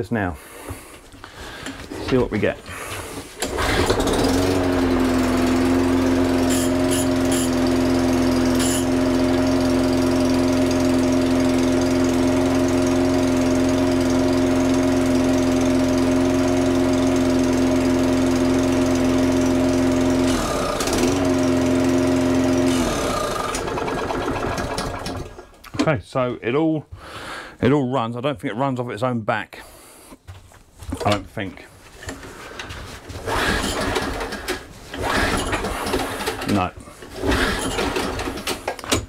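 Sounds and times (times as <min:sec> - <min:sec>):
lawnmower engine running and stalling: 0:03.4 - 0:25.6, 0:33.2 - 0:39.0.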